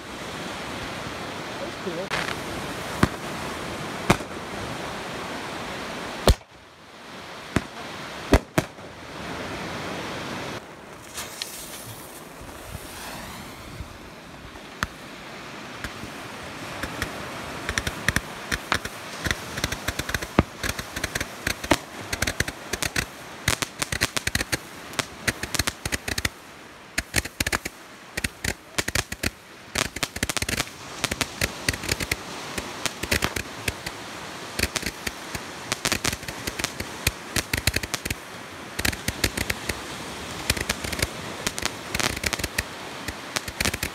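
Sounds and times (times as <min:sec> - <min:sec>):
firework popping and crackling: 0:02.0 - 0:04.4, 0:06.2 - 0:06.5, 0:07.5 - 0:09.0, 0:11.0 - 0:13.8, 0:16.8 - 0:26.4, 0:27.0 - 0:38.2, 0:38.8 - 0:43.9.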